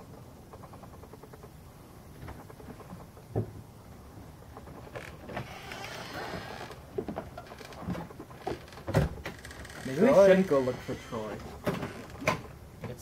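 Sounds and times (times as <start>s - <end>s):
footsteps: 4.6s - 13.0s
door creaking: 4.9s - 13.0s.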